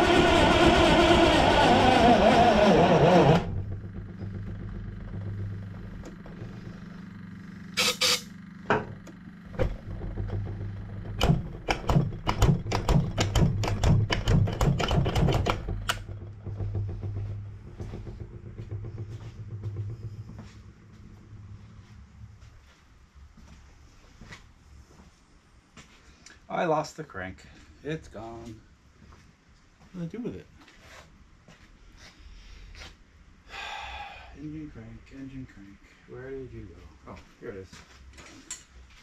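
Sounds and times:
generator engine running: 0:00.0 - 0:23.5
sharp irregular clicks and pops: 0:10.3 - 0:16.1.

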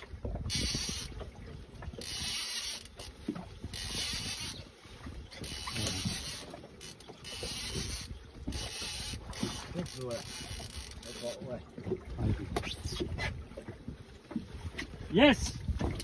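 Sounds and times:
wind rumble on microphone: 0:00.0 - 0:02.4, 0:03.0 - 0:06.3, 0:11.8 - 0:16.0
waves lapping against boat hull: 0:00.0 - 0:16.0.

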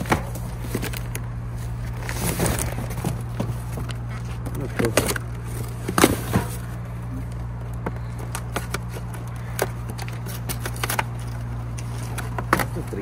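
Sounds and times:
cardboard boxes being handled: 0:00.0 - 0:13.0
steady low hum: 0:00.0 - 0:13.0
knocks and rustles: 0:01.8 - 0:06.8.

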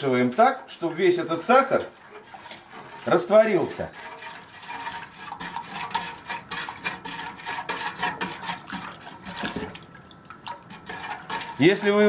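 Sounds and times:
water swishing: 0:00.2 - 0:12.0
sugar grains rustling in a pot: 0:10.7 - 0:12.0.

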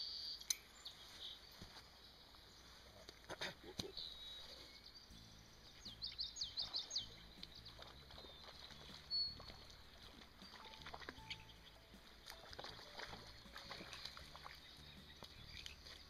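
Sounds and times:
small songbird singing: 0:00.0 - 0:03.1, 0:03.8 - 0:16.0.

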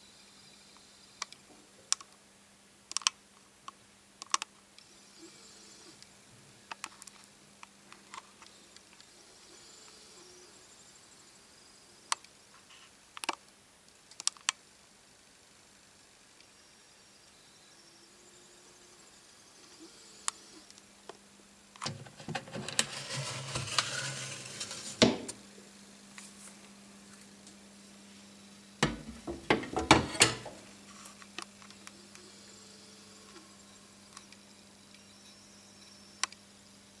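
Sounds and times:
hard objects clattering and knocking: 0:28.8 - 0:30.6.

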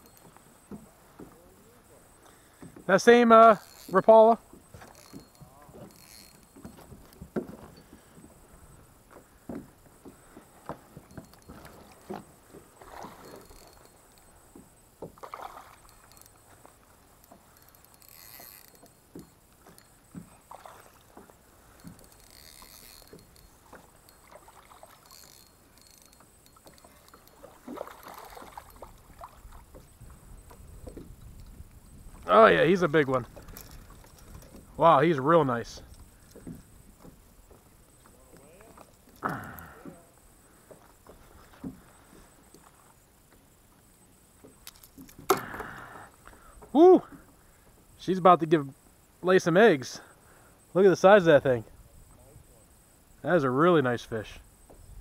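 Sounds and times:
water lapping against plastic hull: 0:03.6 - 0:17.9, 0:18.7 - 0:25.8, 0:26.5 - 0:32.5, 0:35.8 - 0:43.0.

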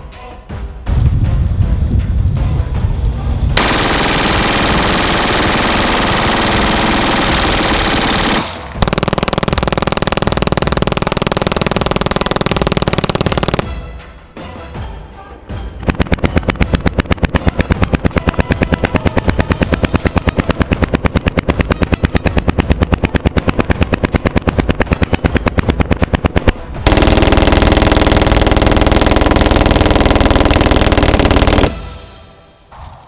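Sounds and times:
pistol firing full-auto: 0:03.6 - 0:13.8, 0:15.8 - 0:31.8.

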